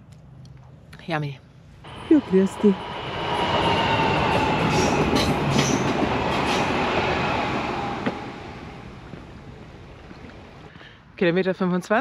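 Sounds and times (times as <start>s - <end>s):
train passing: 1.8s - 10.7s
rail clicks: 1.9s - 10.7s.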